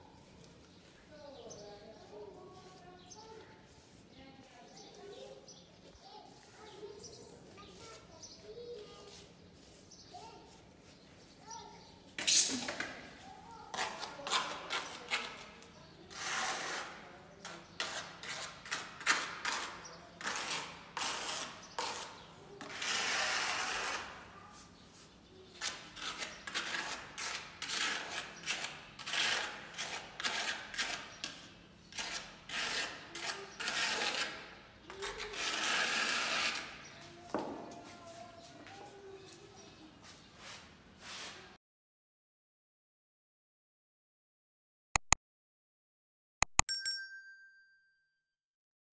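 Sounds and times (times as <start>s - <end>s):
trowel scraping wet cement: 13.7s - 37.0s.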